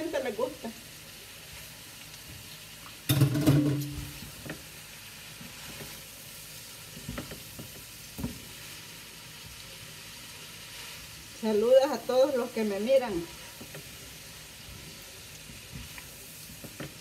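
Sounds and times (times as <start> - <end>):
pasta sizzling in a pan: 0.0 - 17.0
spoon clattering in a pan: 3.1 - 4.2.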